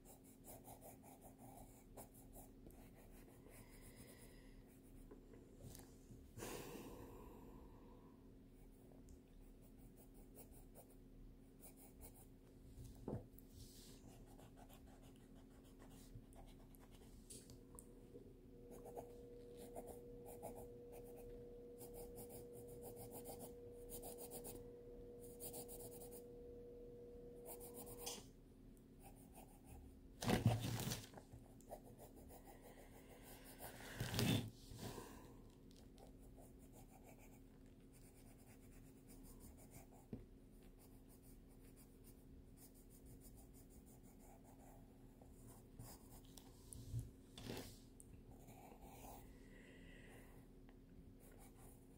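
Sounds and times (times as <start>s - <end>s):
pencil scratching on paper: 0.0s - 5.1s, 9.4s - 12.4s, 13.9s - 17.1s, 18.6s - 26.4s, 27.4s - 28.2s, 29.0s - 30.4s, 36.0s - 46.4s, 48.3s - 49.2s, 51.2s - 51.9s
faint steady tone: 13.0s - 30.0s.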